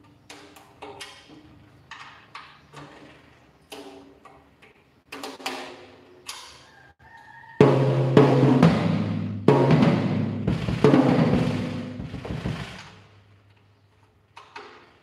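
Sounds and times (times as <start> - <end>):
drum tom strikes: 7.6 - 13.0
full drum kit playing: 7.6 - 13.2.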